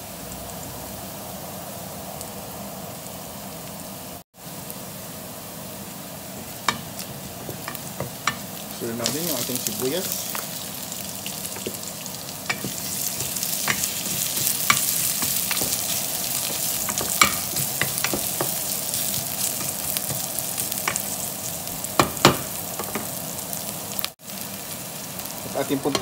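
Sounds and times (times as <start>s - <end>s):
onions sizzling in hot oil: 0.0s - 26.0s
wooden spoon knocking on pot: 6.4s - 8.4s, 12.5s - 18.6s, 22.0s - 23.1s.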